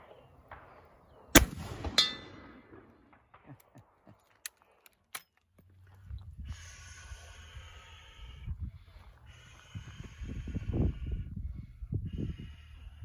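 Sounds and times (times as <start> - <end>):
rifle shot: 0.0 - 3.5.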